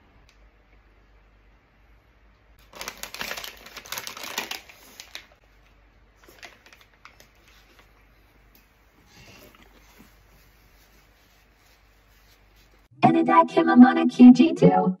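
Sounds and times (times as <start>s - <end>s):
paper wrapper crinkling: 2.6s - 8.1s.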